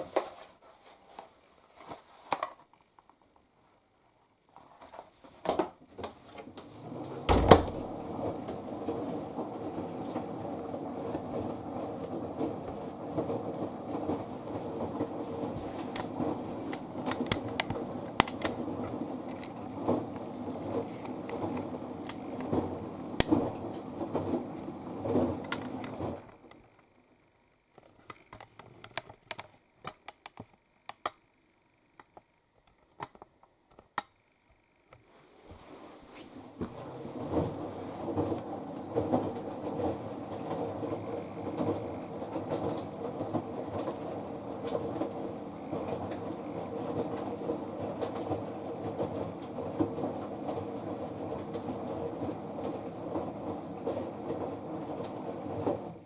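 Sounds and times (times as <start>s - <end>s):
clothes rustling: 0.0s - 3.0s, 35.0s - 40.8s
thump: 7.3s - 7.8s.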